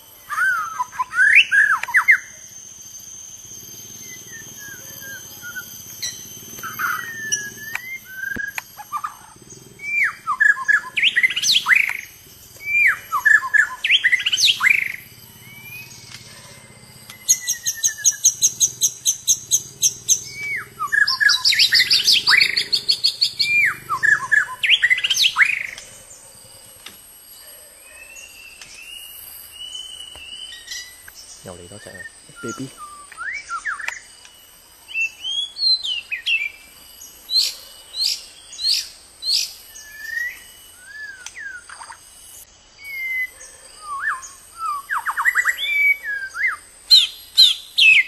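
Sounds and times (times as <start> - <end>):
bird singing loud whistles: 0.2 - 16.4, 17.0 - 25.9, 31.7 - 34.1, 37.3 - 42.0, 42.8 - 48.0
fast high ticking bird notes: 0.8 - 25.9.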